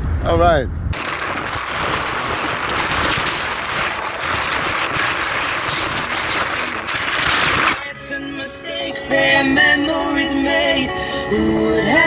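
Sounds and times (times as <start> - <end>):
wind rush: 0.0 - 7.8
road noise: 0.0 - 7.9.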